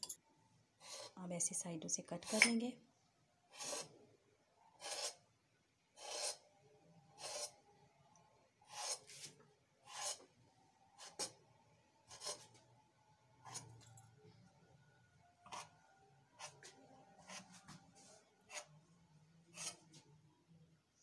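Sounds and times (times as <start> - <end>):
knife scraping stone countertop: 2.2 - 2.6, 3.5 - 3.9, 4.8 - 5.2, 6.0 - 6.4, 7.2 - 7.6, 8.7 - 10.3, 12.1 - 12.6, 13.4 - 14.0, 15.4 - 15.8, 16.4 - 18.7, 19.5 - 20.0.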